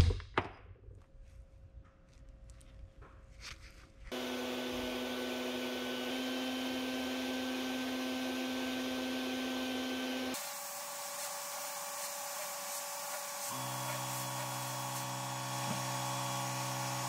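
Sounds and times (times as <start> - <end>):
sandblast cabinet humming: 4.1 - 17.0
blast gun spraying abrasive: 10.3 - 17.0.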